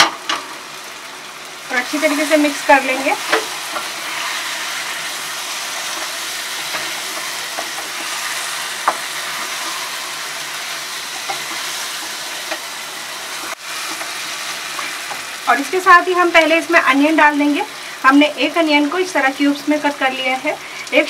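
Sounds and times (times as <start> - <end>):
food sizzling in a pan: 0.0 - 21.0
spatula stirring food: 1.9 - 15.5
spatula tapping a pan: 6.0 - 8.2, 8.8 - 9.8, 11.1 - 12.7.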